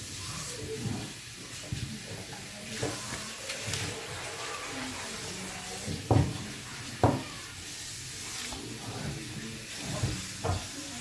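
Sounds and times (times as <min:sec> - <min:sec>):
dish knocking on a tabletop: 0:05.9 - 0:06.4, 0:07.0 - 0:07.3.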